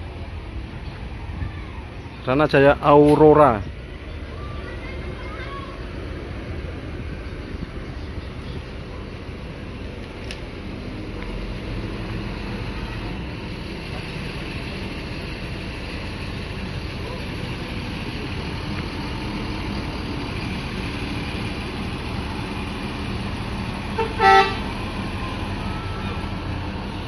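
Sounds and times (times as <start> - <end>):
coach engine low rumble: 0.0 - 27.0
loud horn blast: 23.9 - 24.7.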